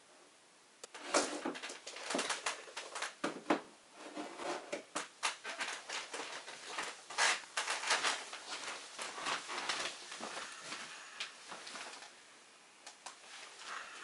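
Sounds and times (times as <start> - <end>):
rustling of handled things: 0.8 - 14.0
person moving: 4.0 - 12.2, 13.1 - 14.0.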